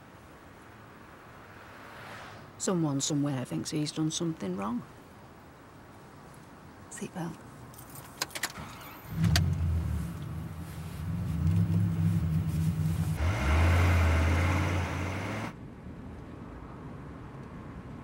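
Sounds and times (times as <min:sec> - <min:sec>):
car driving hum: 0:08.4 - 0:15.6
car engine starting and revving: 0:08.5 - 0:15.6.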